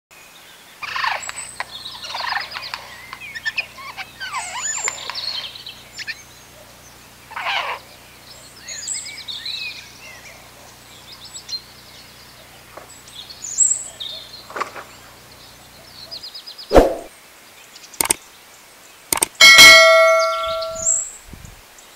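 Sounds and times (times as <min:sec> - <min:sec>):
songbirds chirping and twittering: 0:00.1 - 0:21.9.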